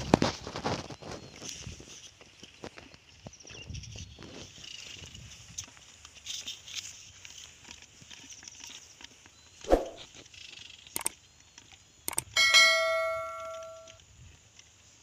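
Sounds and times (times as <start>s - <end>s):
short sharp sound: 9.7s - 10.0s
animation clicks: 11.0s - 11.2s, 12.1s - 12.4s
fishing rod handling ticks: 12.1s - 12.4s.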